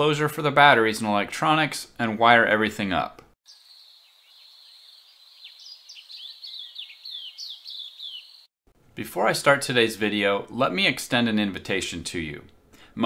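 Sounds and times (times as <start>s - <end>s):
high insect buzz: 3.5s - 8.4s
birds chirping: 3.5s - 8.5s.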